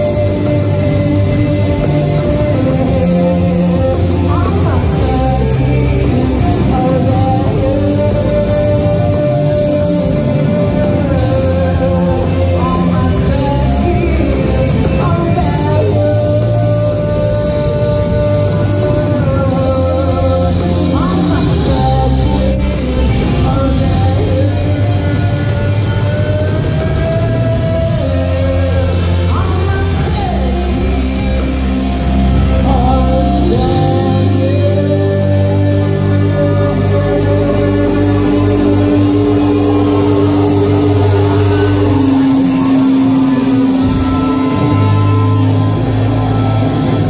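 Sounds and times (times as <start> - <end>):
woman singing: 0.0 - 31.9
drums: 0.0 - 47.0
electric bass: 0.0 - 47.0
electric guitar: 0.0 - 47.0.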